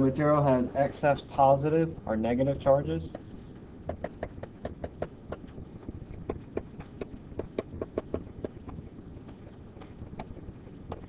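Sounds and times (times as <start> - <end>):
stylus tapping on screen: 3.1 - 11.0.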